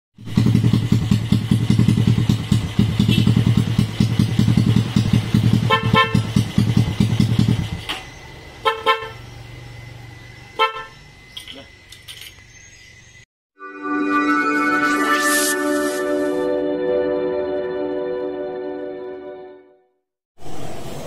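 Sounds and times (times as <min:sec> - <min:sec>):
motorcycle engine idling: 0:00.2 - 0:07.9
horn toots: 0:03.0 - 0:03.6, 0:05.5 - 0:06.4.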